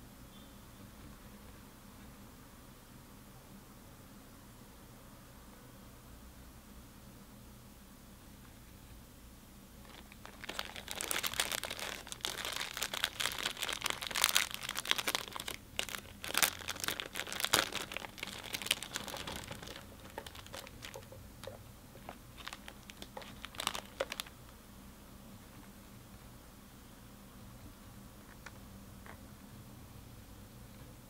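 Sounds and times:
plastic bag crinkling: 0:09.8 - 0:24.4.

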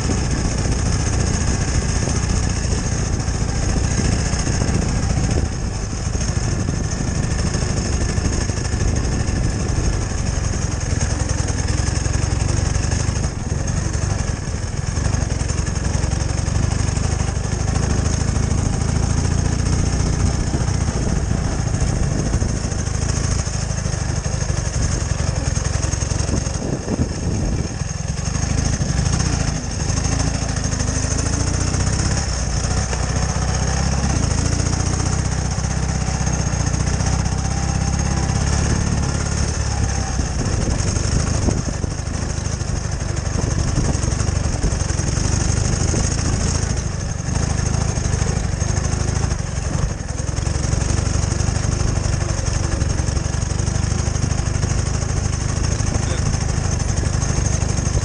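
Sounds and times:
motorcycle engine droning: 0:00.0 - 0:58.0.

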